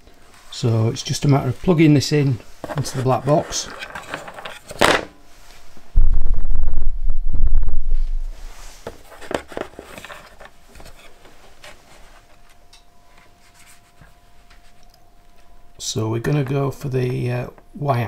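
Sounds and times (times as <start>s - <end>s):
faint steady whine: 0.0s - 18.0s
heavy low rumble: 5.8s - 8.6s.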